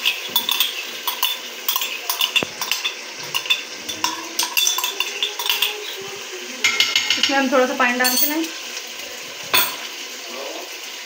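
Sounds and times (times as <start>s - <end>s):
fork clinking on metal pot: 0.0s - 5.9s, 6.6s - 7.4s, 8.0s - 8.5s.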